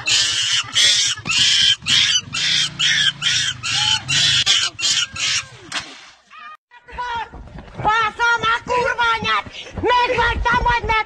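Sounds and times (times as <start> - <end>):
young monkey screeching: 0.0 - 5.6.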